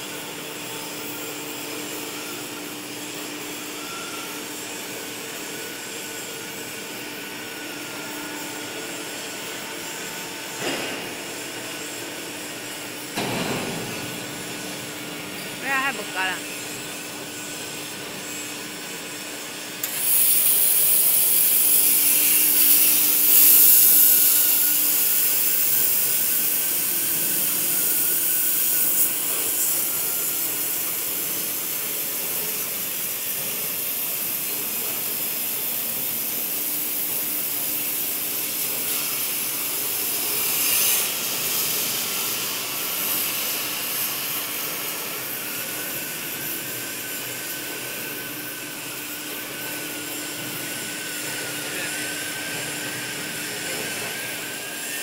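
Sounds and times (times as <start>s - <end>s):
cutting torches hissing: 19.8s - 35.2s.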